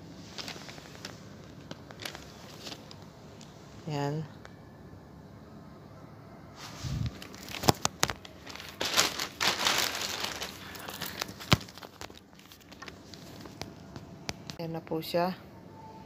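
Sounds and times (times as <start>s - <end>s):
plastic bag crinkling: 0.3s - 3.5s, 6.9s - 13.8s.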